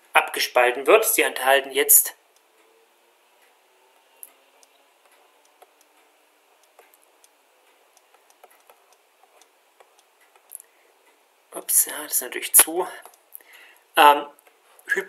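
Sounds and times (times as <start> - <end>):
stylus tapping on drawing tablet: 8.0 - 10.5.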